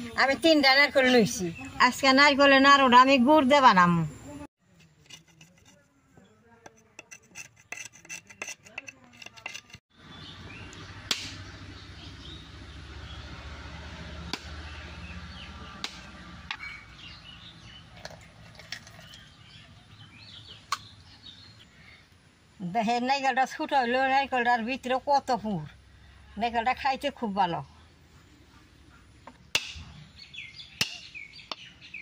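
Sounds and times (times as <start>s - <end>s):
birds chirping: 0.0s - 4.5s, 9.9s - 22.7s, 27.5s - 32.0s
knife scraping coconut husk: 4.7s - 6.0s, 6.6s - 9.8s.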